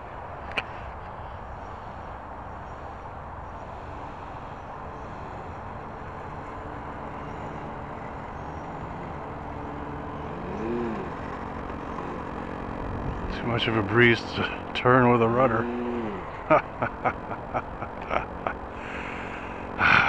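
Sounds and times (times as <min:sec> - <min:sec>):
faint motor tone: 0:01.2 - 0:20.0
wind buffeting microphone: 0:11.2 - 0:15.1.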